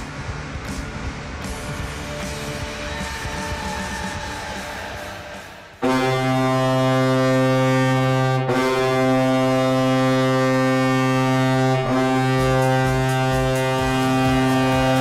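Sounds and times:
arena goal horn blasts: 5.8 - 15.0.

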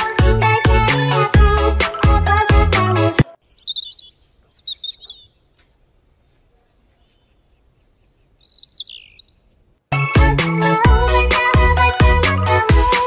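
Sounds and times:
loud backing music: 0.0 - 3.3, 9.9 - 13.0
small birds chirping: 3.0 - 9.9.

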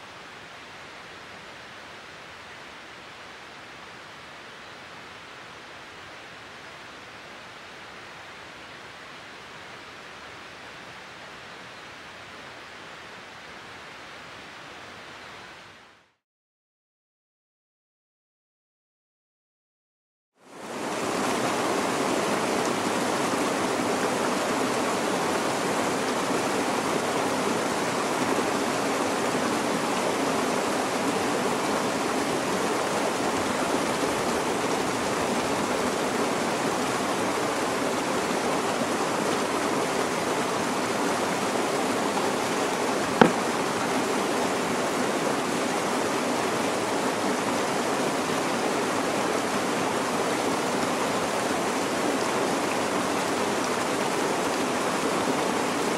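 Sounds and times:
mountain stream rushing: 20.4 - 55.9.

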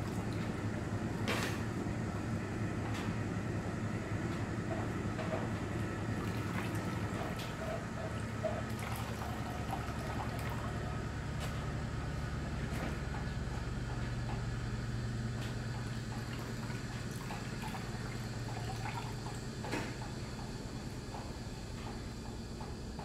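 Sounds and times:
steady low hum: 0.0 - 23.0
water splashes and drips: 6.2 - 10.8.

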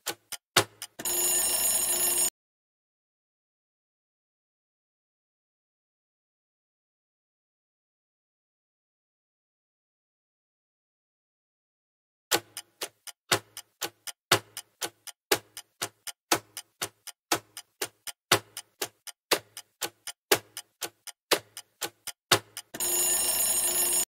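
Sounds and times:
countdown timer ticking: 0.0 - 2.2, 12.3 - 24.0
bright ringing alarm: 1.0 - 2.3, 22.8 - 24.0.

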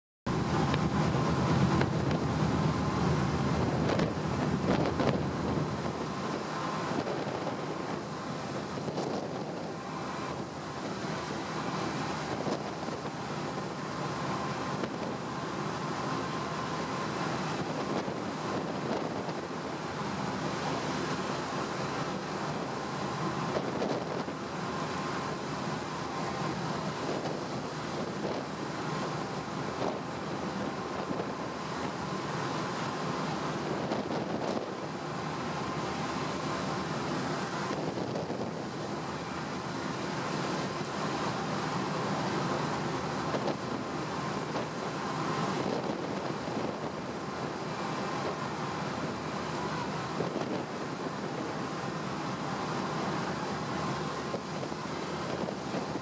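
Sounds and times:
wind noise on microphone: 0.3 - 11.2, 12.1 - 13.7, 17.0 - 19.7, 23.4 - 24.4, 26.8 - 32.0, 33.5 - 34.9, 36.9 - 39.3, 42.4 - 51.8, 54.2 - 56.0
sea rushing: 0.3 - 56.0.

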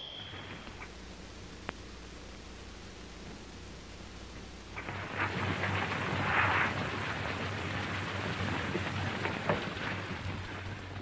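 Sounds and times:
film crackles: 0.3 - 11.0.

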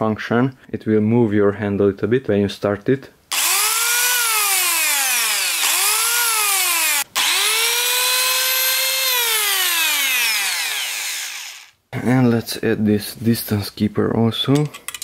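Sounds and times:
circular saw motor whining: 3.3 - 11.8.

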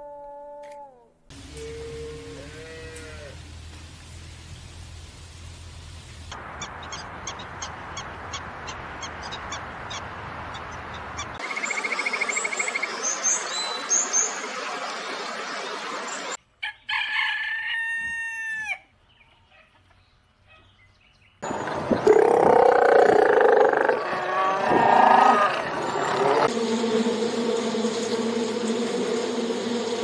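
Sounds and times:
steady hiss: 1.3 - 6.5
rooster crowing: 16.6 - 18.8, 22.1 - 26.5.

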